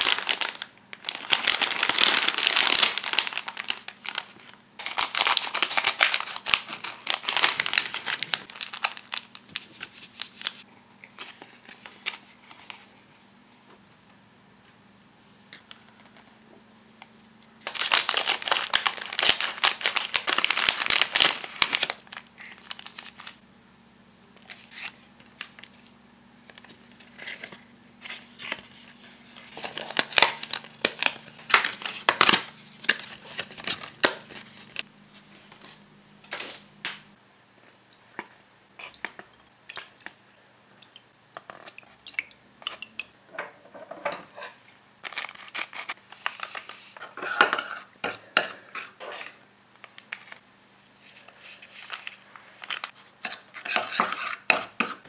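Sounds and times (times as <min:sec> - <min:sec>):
foil and paper packaging crinkling: 0:00.0 - 0:10.6, 0:17.6 - 0:23.4, 0:26.5 - 0:36.7, 0:45.0 - 0:47.4, 0:51.0 - 0:54.1.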